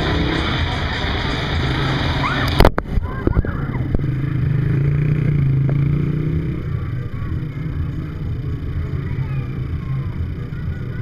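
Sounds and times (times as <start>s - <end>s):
vehicle engine running: 0.0s - 11.0s.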